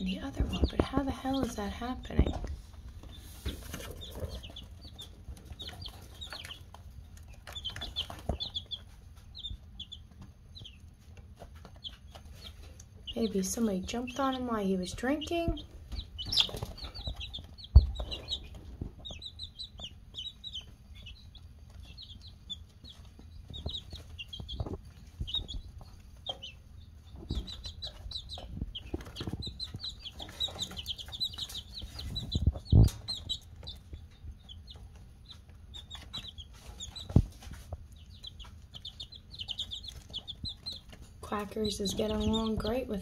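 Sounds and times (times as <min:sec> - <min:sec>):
chicks peeping: 0:00.0 - 0:43.0.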